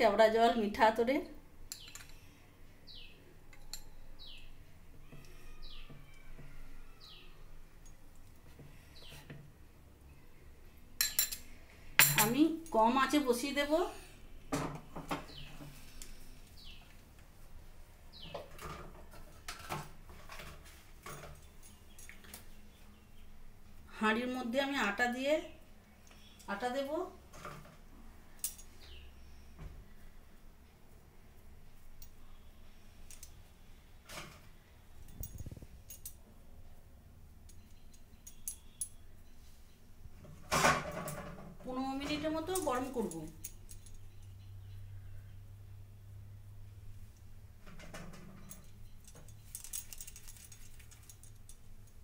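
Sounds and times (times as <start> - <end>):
faint low hum: 0.0 - 52.0
faint clicks and clinks: 1.7 - 2.3, 37.4 - 39.4, 48.2 - 52.0.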